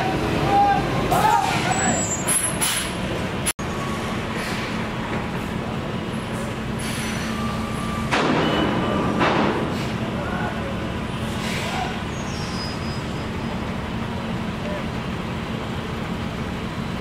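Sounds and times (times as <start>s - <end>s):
truck diesel engines humming: 0.0s - 17.0s
air brakes hissing: 1.1s - 3.0s, 3.8s - 4.9s, 6.4s - 8.2s, 9.6s - 10.1s, 11.2s - 13.6s.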